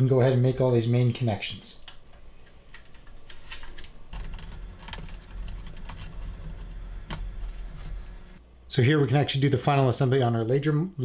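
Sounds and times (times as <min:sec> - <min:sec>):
cable connectors clicking: 0:02.7 - 0:08.4
small parts rattling: 0:03.3 - 0:07.7.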